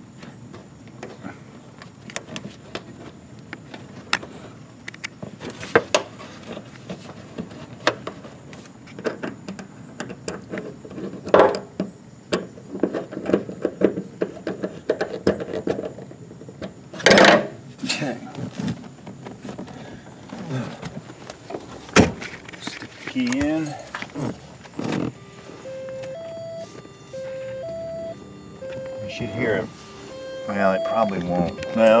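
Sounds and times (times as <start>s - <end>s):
hands handling rubber hose: 18.3s - 32.0s.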